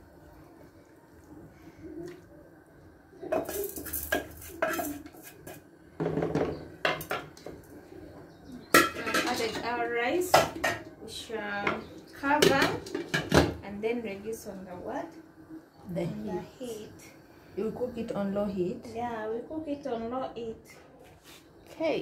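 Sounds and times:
cookware clattering: 3.3s - 7.6s, 8.6s - 10.9s, 11.7s - 13.6s.

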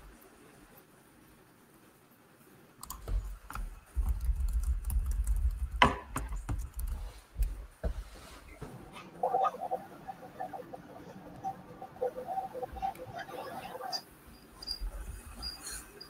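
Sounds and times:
sharp clicks and knocks: 2.8s - 8.0s.

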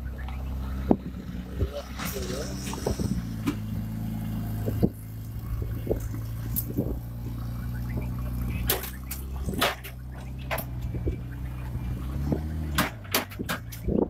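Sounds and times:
engine running steadily: 0.0s - 14.0s
sharp metallic knocks and clanks: 12.7s - 13.9s.

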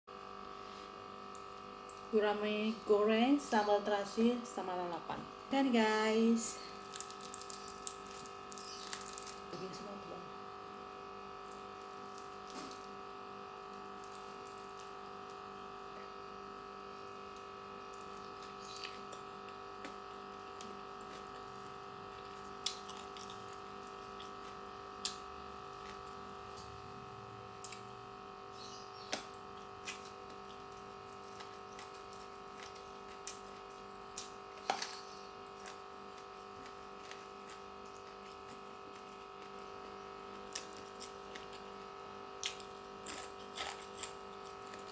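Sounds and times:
steady background hum: 0.1s - 44.9s
chewing smacks: 20.6s - 25.2s, 42.4s - 44.9s.

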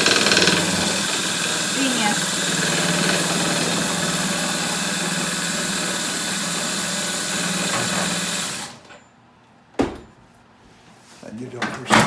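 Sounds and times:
electric lift motor humming: 0.0s - 8.8s.

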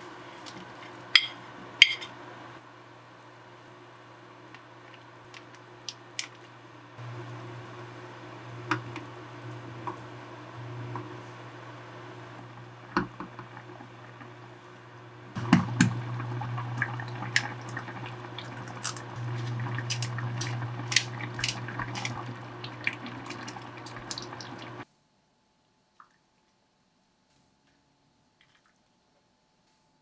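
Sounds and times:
induction hob humming: 0.0s - 24.8s
egg cracking: 4.5s - 6.6s, 15.4s - 24.8s
stew bubbling and popping in pot: 8.5s - 11.2s, 12.4s - 24.8s
wooden spoon stirring: 15.4s - 24.8s.

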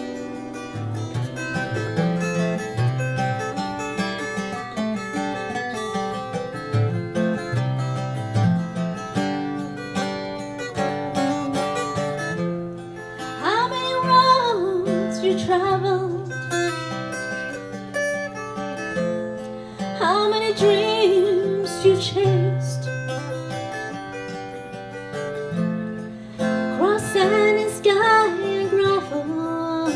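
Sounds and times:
acoustic guitar: 0.0s - 29.9s
woman singing: 13.4s - 16.6s, 20.0s - 23.4s, 26.4s - 29.9s.

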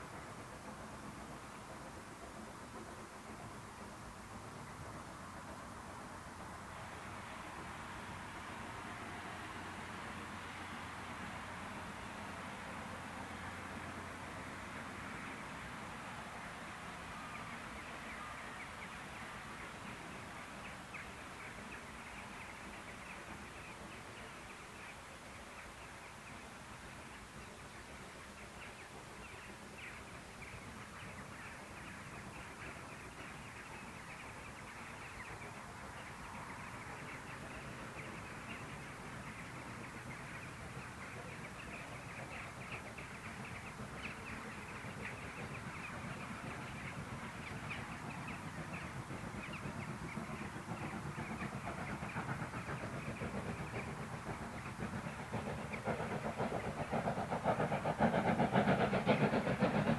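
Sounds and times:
steam locomotive chuffing: 0.0s - 59.9s.

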